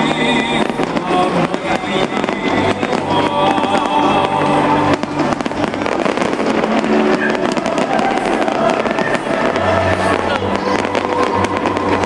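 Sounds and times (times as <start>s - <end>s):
fireworks popping and crackling: 0.0s - 12.0s
loud show music over loudspeakers: 0.0s - 12.0s.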